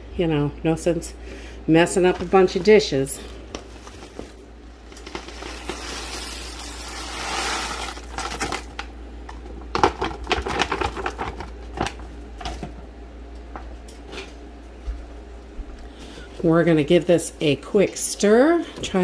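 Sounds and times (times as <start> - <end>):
food pouring into pot hissing: 5.4 - 8.1.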